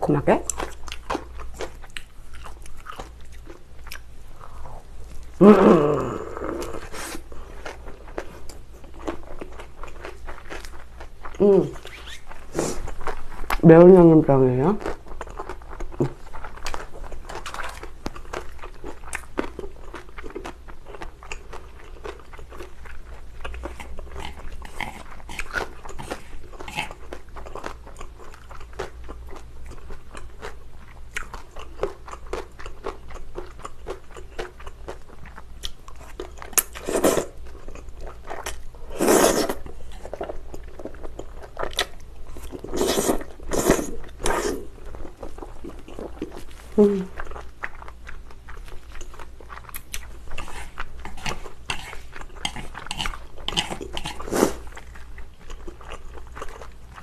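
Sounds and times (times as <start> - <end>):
chewing: 0.4 - 5.4, 6.2 - 13.6, 14.8 - 57.0
slurping noodles: 36.8 - 37.4, 38.9 - 39.6, 42.6 - 44.7, 50.4 - 54.7.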